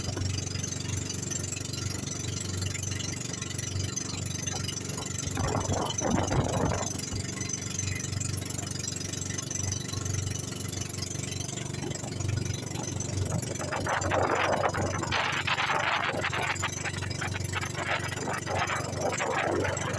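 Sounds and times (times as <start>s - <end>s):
boat engine running: 0.0s - 19.9s.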